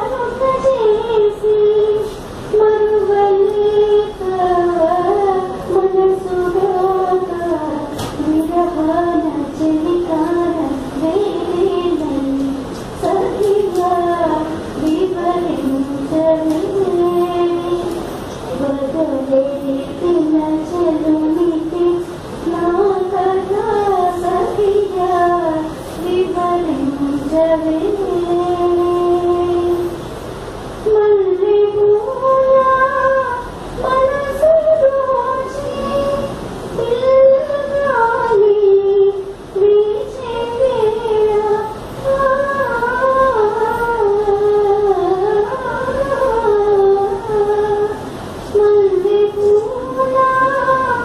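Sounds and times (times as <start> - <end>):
woman singing solo: 0.0 - 30.0.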